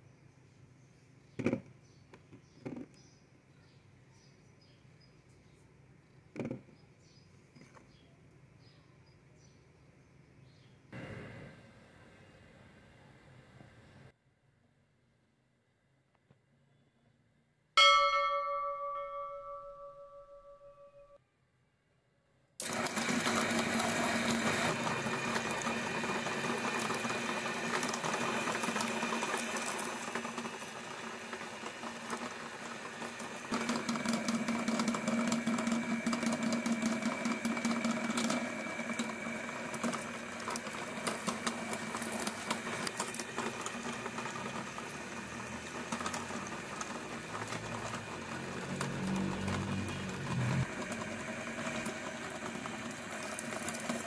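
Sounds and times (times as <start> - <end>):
meat grinder motor whining: 22.6 - 54.0.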